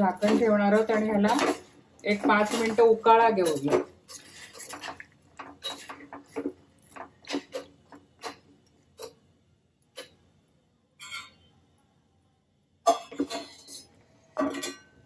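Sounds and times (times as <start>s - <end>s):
metal spoon clinking in saucepan: 0.0s - 6.1s, 11.0s - 11.5s.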